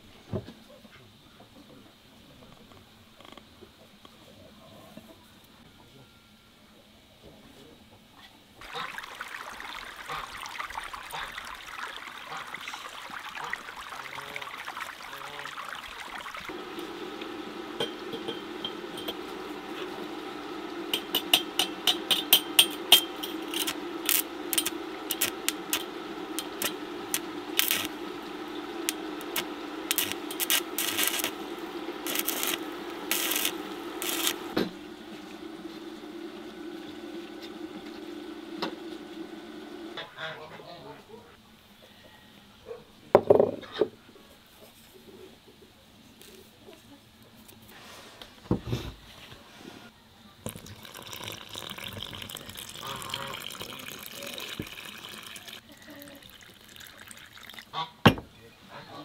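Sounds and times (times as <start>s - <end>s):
welder hum: 8.7s - 40.0s
welding arc crackling: 15.8s - 35.4s.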